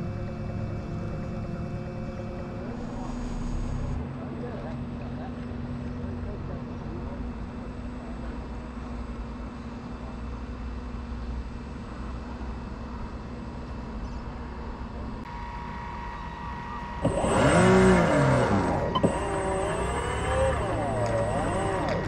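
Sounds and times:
model boat motor humming: 0:00.0 - 0:09.3, 0:15.2 - 0:22.0
loud motor revving: 0:15.3 - 0:22.0.

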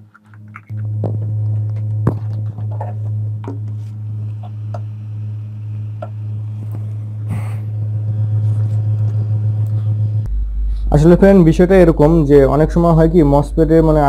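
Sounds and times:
hot air gun blower humming: 0:00.7 - 0:10.9.

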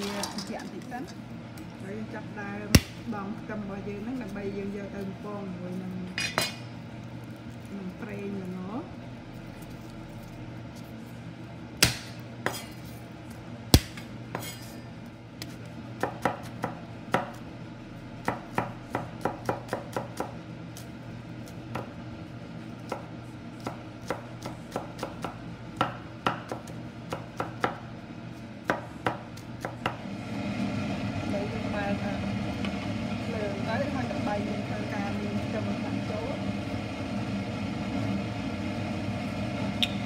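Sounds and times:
knife chopping on wooden board: 0:15.4 - 0:17.4, 0:18.2 - 0:20.4, 0:22.9 - 0:27.8.

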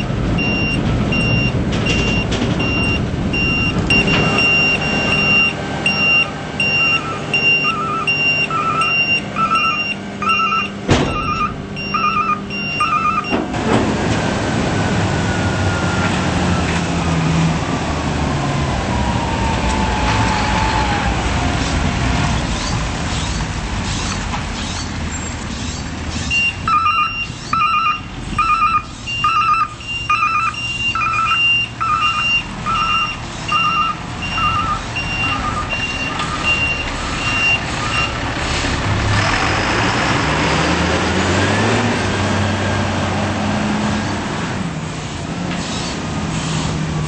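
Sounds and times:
backup alarm beeping: 0:00.0 - 0:13.5, 0:26.3 - 0:38.2
engine revving: 0:00.0 - 0:47.0
garbage truck engine: 0:00.0 - 0:47.0.

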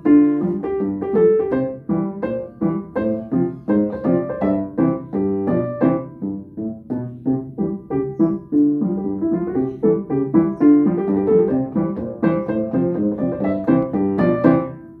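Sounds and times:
solo ragtime piano: 0:00.0 - 0:15.0.

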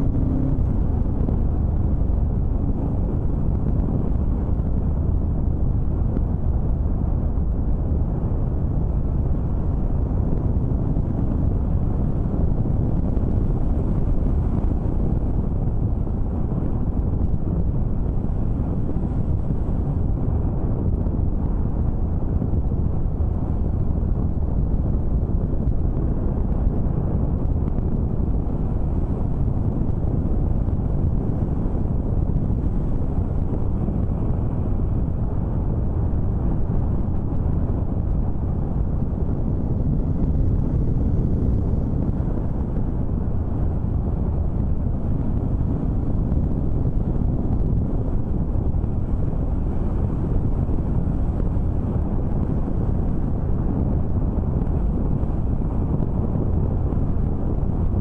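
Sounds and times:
vehicle drone: 0:00.0 - 0:58.0
wind buffeting microphone: 0:00.0 - 0:58.0.

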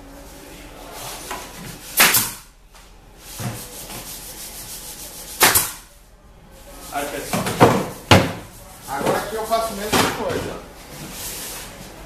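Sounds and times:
pneumatic nailer firing: 0:02.0 - 0:02.5, 0:05.4 - 0:05.8.

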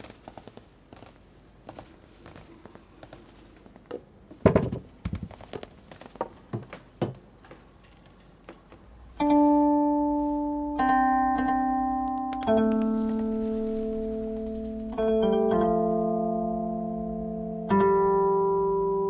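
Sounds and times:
long ringing zither notes: 0:09.2 - 0:19.0
zither plucks: 0:09.2 - 0:19.0.

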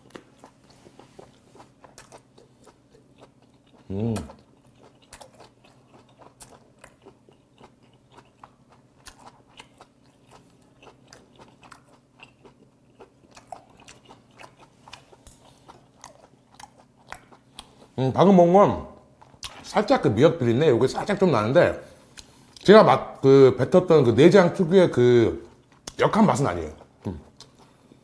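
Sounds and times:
chewing with wet mouth smacks: 0:00.0 - 0:18.0, 0:25.4 - 0:28.0.

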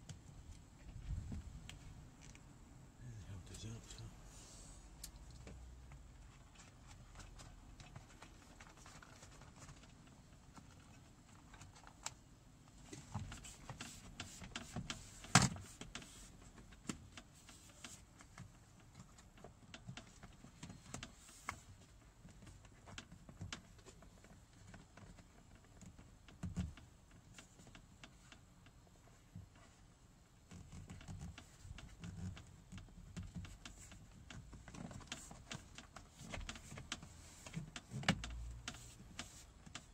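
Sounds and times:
plastic car trim clicks and rattles: 0:12.8 - 0:28.8, 0:30.4 - 0:39.9.

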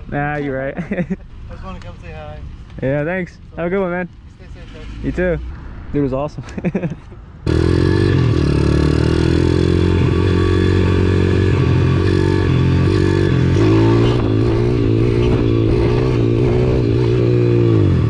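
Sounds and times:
pit bike engines running: 0:06.5 - 0:18.0.

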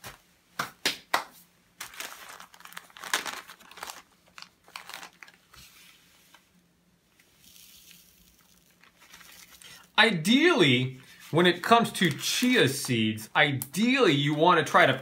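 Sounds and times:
sharp plastic crackles: 0:01.8 - 0:05.6, 0:07.4 - 0:09.9
plastic bag crinkling and rustling: 0:01.8 - 0:06.4, 0:07.2 - 0:09.9, 0:10.6 - 0:13.0.

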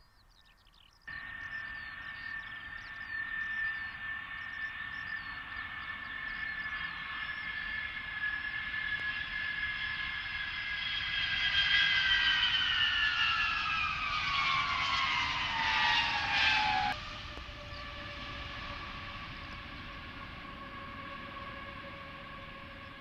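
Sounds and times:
quieter steady engine whine: 0:00.9 - 0:23.0
jet engines whining: 0:01.1 - 0:23.0.

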